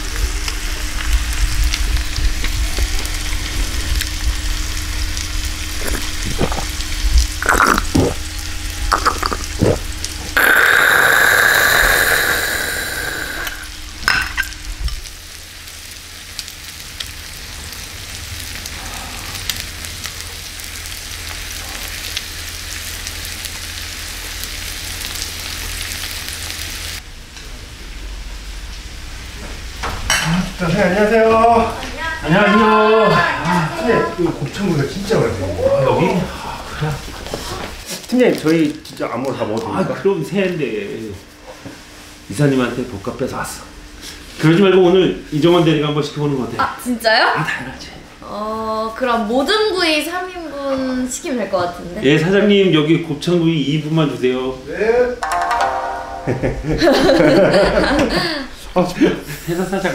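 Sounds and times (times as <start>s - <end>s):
meat sizzling in a pan: 0.0s - 27.0s.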